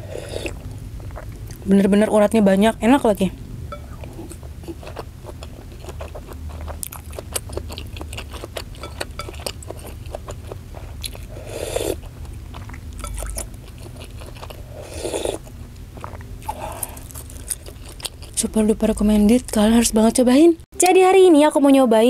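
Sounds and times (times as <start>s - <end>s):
close chewing with mouth clicks: 0.2s - 1.7s, 3.8s - 18.6s.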